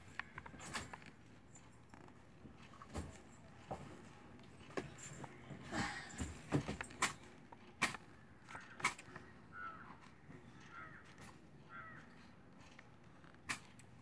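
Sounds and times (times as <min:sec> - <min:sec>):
sharp clicks: 0:07.8 - 0:09.3
bird calling: 0:08.1 - 0:12.4.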